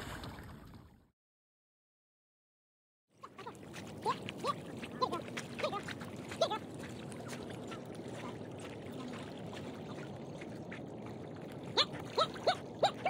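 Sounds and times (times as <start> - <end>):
water lapping: 3.1 - 13.0.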